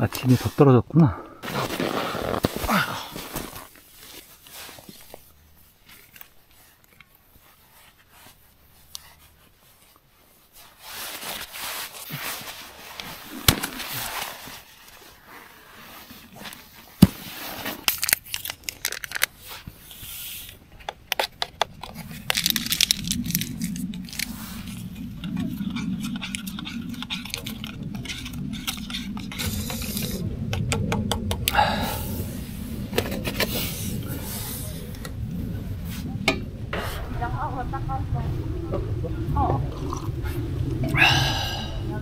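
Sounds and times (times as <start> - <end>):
low hum: 19.7 - 42.0.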